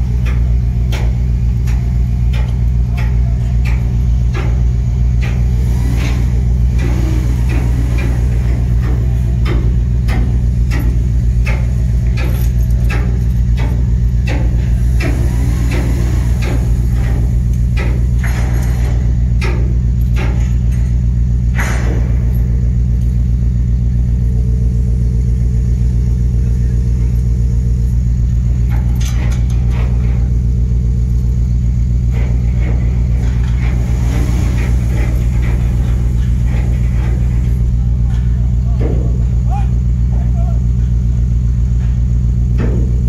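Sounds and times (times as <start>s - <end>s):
heavy diesel engine drone: 0.0s - 43.0s.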